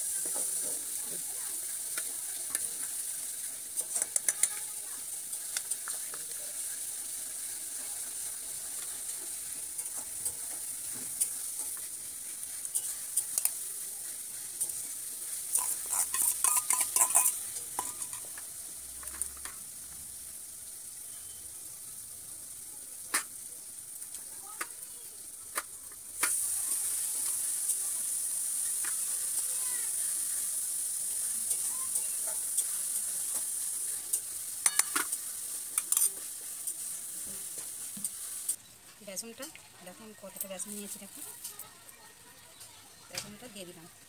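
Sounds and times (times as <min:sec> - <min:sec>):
steady high hiss: 0:00.0 - 0:43.8
metal spoon tapping steel bowls: 0:15.6 - 0:18.4, 0:34.1 - 0:35.1.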